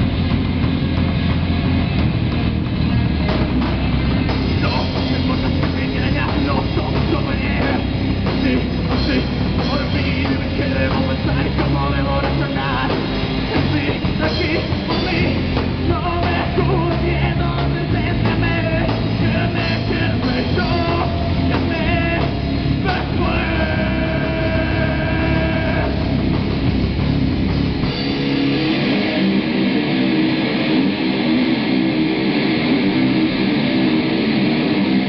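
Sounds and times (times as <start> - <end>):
bass guitar: 0.0 - 35.0
distorted electric guitars: 0.0 - 35.0
drum kit: 0.0 - 35.0.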